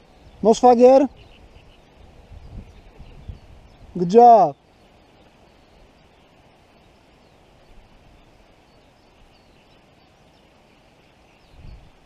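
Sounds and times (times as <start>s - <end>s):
distant bird chirps: 0.0s - 12.0s
steady low hiss: 0.0s - 12.0s.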